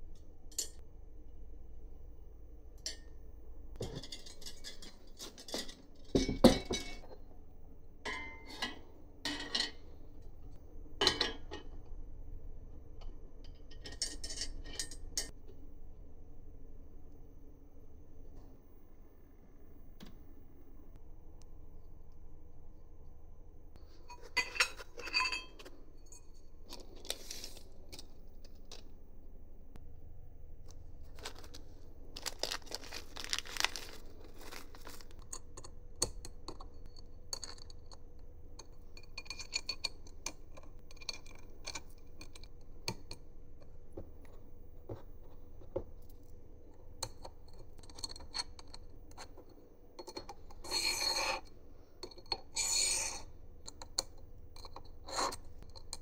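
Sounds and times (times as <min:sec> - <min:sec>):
rubbing and scraping: 0:50.6 - 0:51.4.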